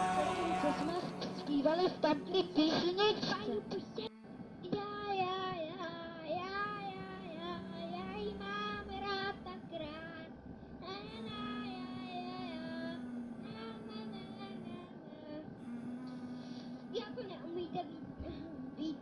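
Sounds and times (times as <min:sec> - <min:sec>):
held accompanying note: 0:00.0 - 0:02.5
high child-like voice singing: 0:00.0 - 0:04.1.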